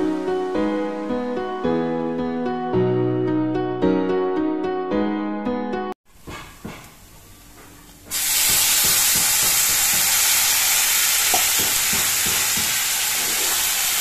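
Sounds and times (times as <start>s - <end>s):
loud sizzling hiss: 8.1s - 14.0s
spatula knocking against pan: 11.3s - 12.8s.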